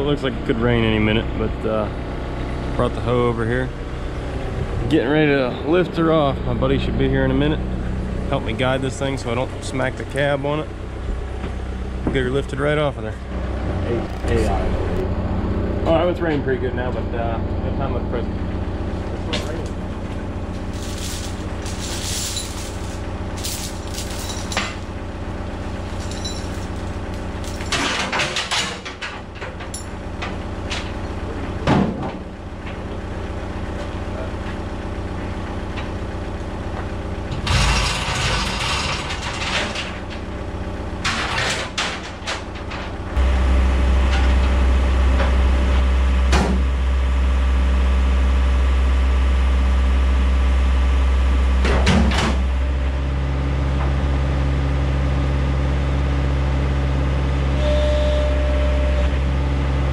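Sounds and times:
diesel engine idling: 0.0 - 59.9
metal chain clanking: 20.7 - 24.9, 25.8 - 30.0.

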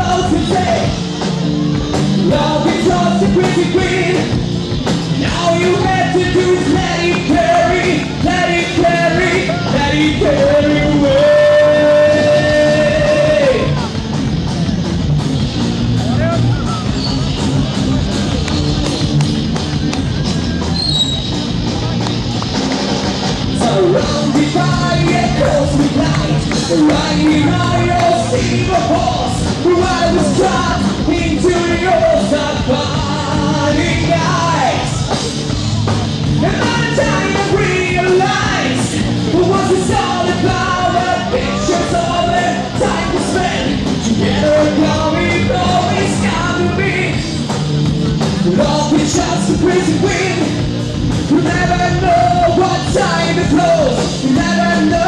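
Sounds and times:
rock band playing live: 0.0 - 55.0
person singing: 2.2 - 4.4, 5.2 - 13.9, 23.6 - 35.2, 36.4 - 47.2, 48.4 - 50.6, 51.3 - 55.0.

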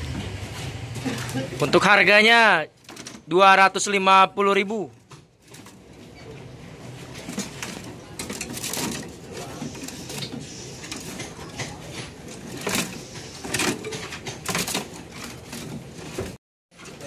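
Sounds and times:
clatters against cage bars: 7.1 - 17.0.

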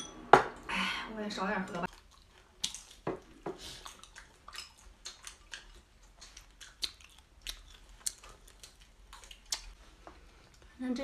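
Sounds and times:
person chewing wetly: 1.9 - 9.8.

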